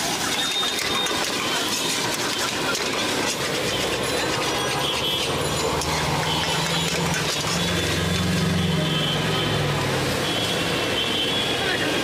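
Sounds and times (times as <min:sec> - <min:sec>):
metal spatula scraping a wok: 0:00.0 - 0:08.8
vehicle engine humming: 0:00.0 - 0:12.0.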